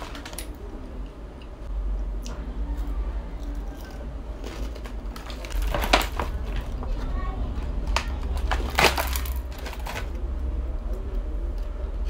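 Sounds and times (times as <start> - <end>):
plastic bag crinkling: 0.0 - 0.6, 4.4 - 6.9, 7.8 - 10.2
low steady hum: 0.0 - 12.0.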